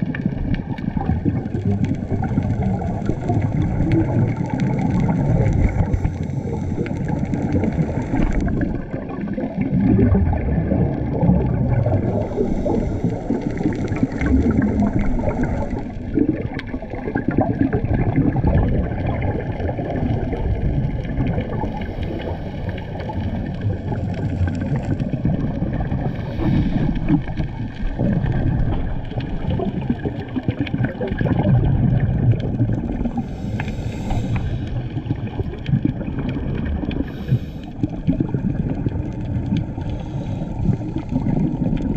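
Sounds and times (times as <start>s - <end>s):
gurgling regulator bubbles: 0.0s - 41.9s
muffled underwater rumble: 0.0s - 41.9s.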